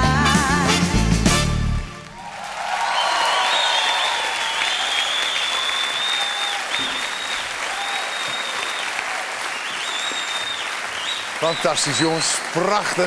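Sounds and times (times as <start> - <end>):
audience applauding: 1.9 - 13.0
high whistles: 2.9 - 12.4.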